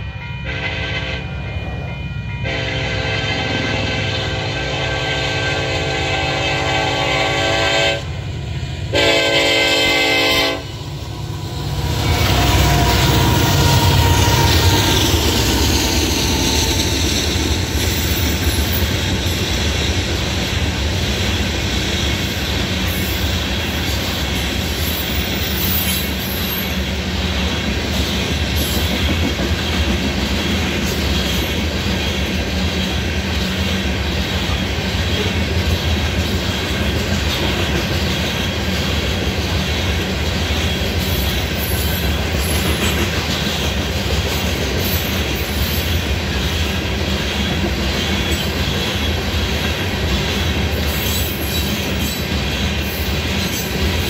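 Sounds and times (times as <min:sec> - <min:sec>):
train air horn blasts: 0:00.4 - 0:01.5, 0:02.4 - 0:08.2, 0:08.9 - 0:15.2
freight cars rumbling: 0:08.1 - 0:54.0
wheels clacking over rail joints: 0:27.4 - 0:54.0.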